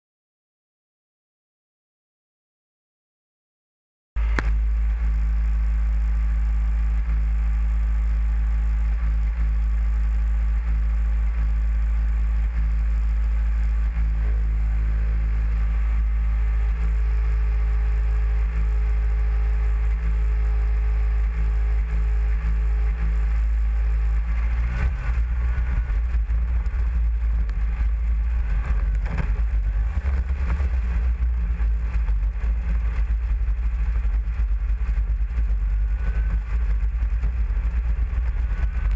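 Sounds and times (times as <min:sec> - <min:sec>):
snowmobile engine: 0:04.2 - 0:38.9
rattles and clatter over snow: 0:19.3 - 0:38.9.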